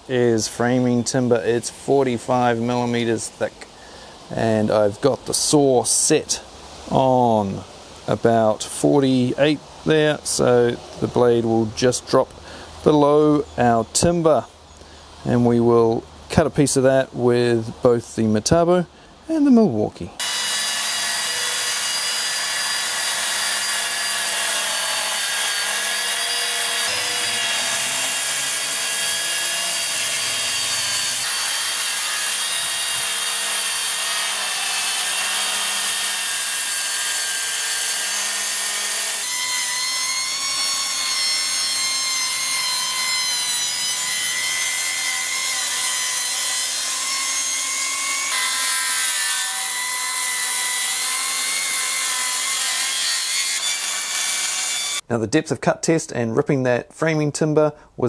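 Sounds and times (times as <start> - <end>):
rasp of saw cutting wood: 20.2 - 55.0
saw motor and blade whine: 20.2 - 55.0.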